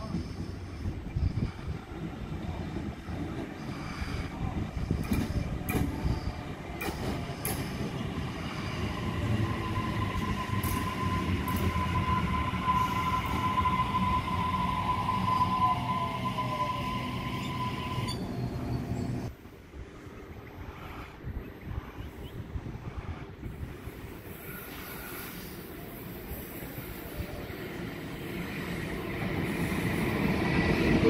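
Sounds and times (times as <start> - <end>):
electric train rumble: 0.0 - 31.0
high-pitched wheel squeal: 9.5 - 19.2.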